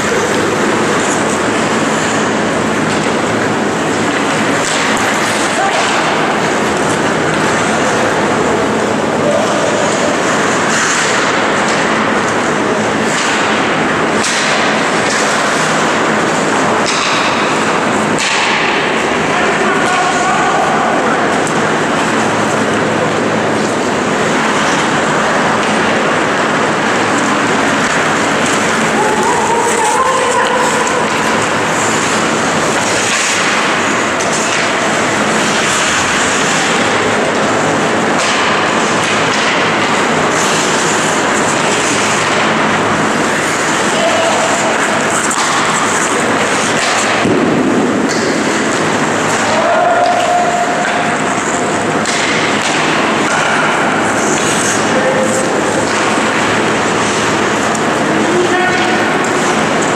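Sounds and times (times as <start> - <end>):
hockey sticks knocking puck: 0.0 - 59.9
loud steady noisy rush: 0.0 - 59.9
skates scraping on ice: 0.0 - 59.9.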